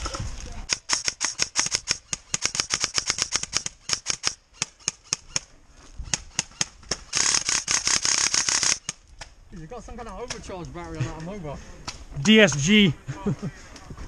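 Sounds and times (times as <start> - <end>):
airsoft rifle shots clicking: 0.7 - 5.4.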